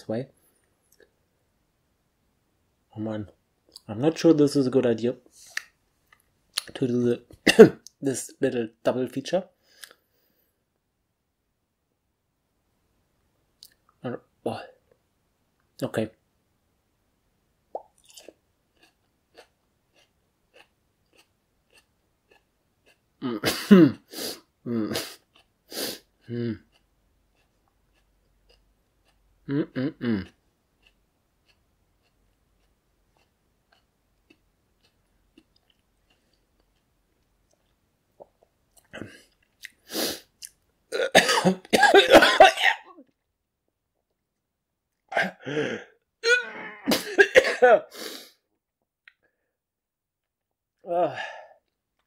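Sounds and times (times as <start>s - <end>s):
man coughing: 7.4s - 7.8s, 23.2s - 24.1s, 41.0s - 43.0s, 45.1s - 48.1s
man chewing mouth clicks: 17.7s - 23.3s, 24.4s - 41.1s.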